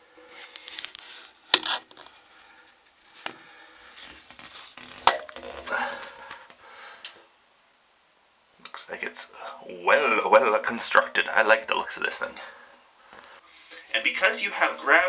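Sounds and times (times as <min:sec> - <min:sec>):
camera rubbing and scraping: 0:00.4 - 0:02.2, 0:03.9 - 0:05.7.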